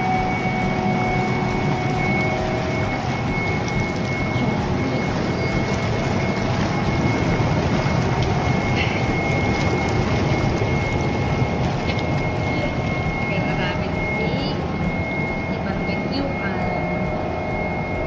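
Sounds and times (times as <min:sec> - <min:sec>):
hot tub jets churning water: 0:00.0 - 0:18.0.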